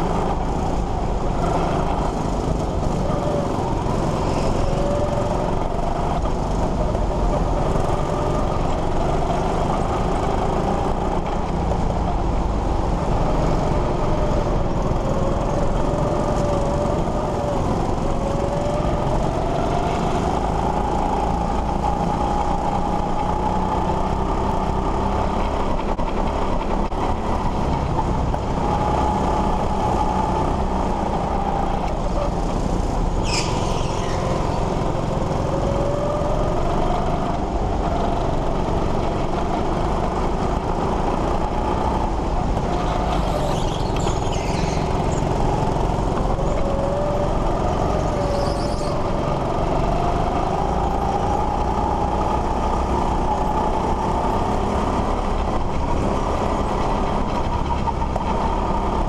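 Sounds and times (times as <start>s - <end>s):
go-kart motor running: 0.0s - 59.0s
tire squeals: 1.4s - 11.0s, 28.8s - 37.3s, 42.6s - 55.2s.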